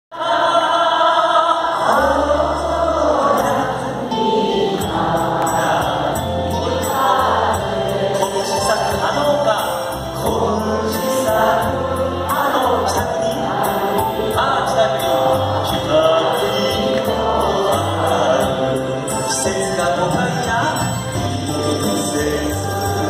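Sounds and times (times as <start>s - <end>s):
man singing: 0.1s - 23.0s
amplified backing band: 0.2s - 23.0s.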